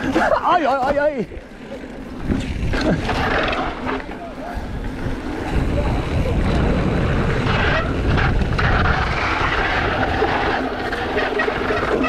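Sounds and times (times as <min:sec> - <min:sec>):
tyres rolling on gravel: 0:00.0 - 0:12.0
wind on microphone: 0:04.5 - 0:12.0.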